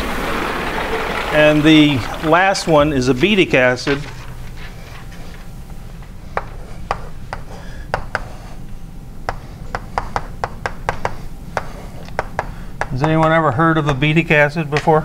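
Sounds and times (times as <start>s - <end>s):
writing taps and scratches on board: 6.3s - 8.5s, 9.3s - 13.2s.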